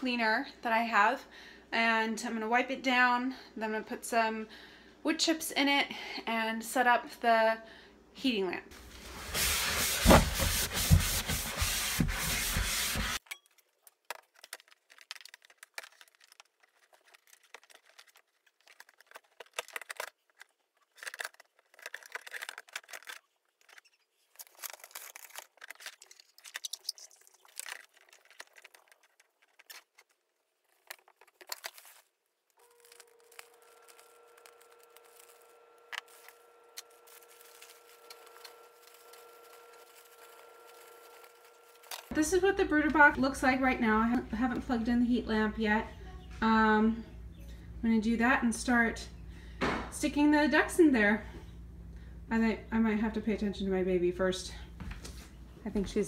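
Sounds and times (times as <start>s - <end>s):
cloth rubbing plastic tote: 8.8s - 13.2s, 21.0s - 43.2s
handling rustles and clicks: 13.2s - 42.2s
faint steady hum: 32.6s - 56.0s.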